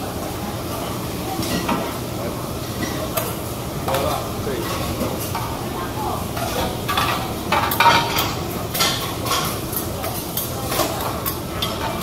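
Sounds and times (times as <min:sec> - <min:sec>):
metal spatulas clanking on griddle: 0:06.4 - 0:12.0.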